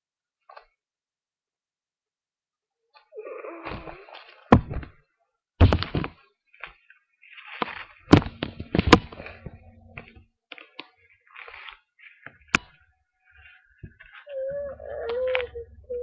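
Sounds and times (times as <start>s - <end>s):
rustling handling noise: 2.9s - 16.0s
sharp knocks and bumps: 4.5s - 5.0s, 5.6s - 6.2s, 7.6s - 10.2s.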